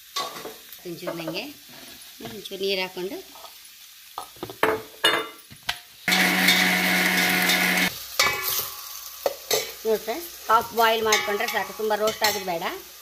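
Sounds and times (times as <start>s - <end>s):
electric mixer grinder running: 6.1s - 7.9s.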